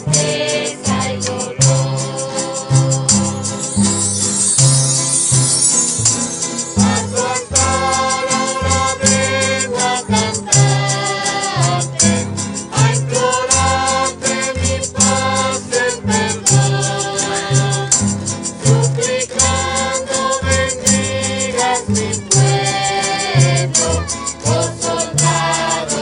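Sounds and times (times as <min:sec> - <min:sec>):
group singing a religious song: 0:00.0 - 0:26.0
strummed acoustic guitars: 0:00.0 - 0:26.0
bass notes: 0:01.6 - 0:11.0.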